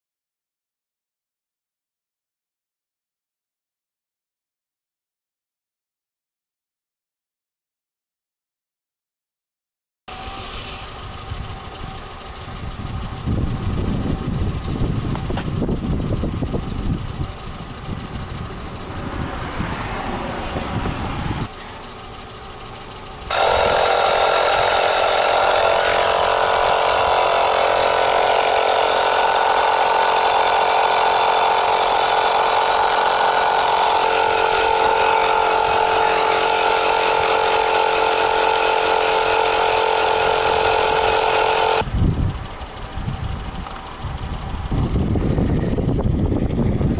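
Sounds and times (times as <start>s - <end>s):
air compressor running: 10.1s - 46.9s.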